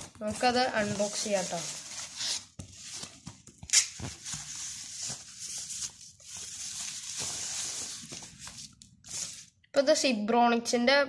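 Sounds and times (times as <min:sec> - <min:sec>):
packaging wrap crinkling: 0:00.3 - 0:09.5.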